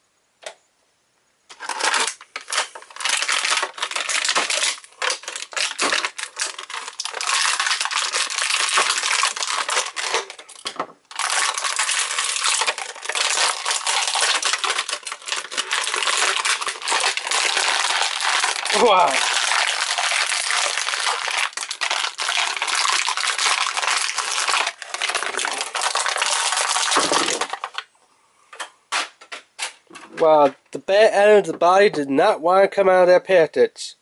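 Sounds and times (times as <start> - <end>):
plastic packaging crinkling: 1.5 - 27.9.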